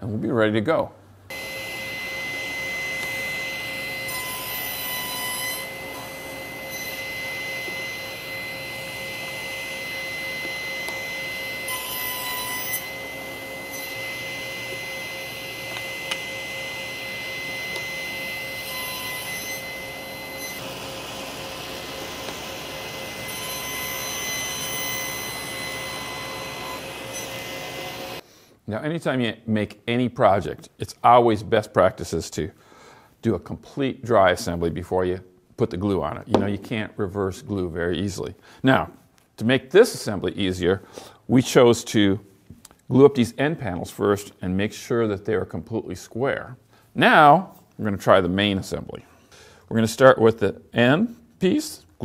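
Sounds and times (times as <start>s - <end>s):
table saw whining: 1.3s - 28.2s.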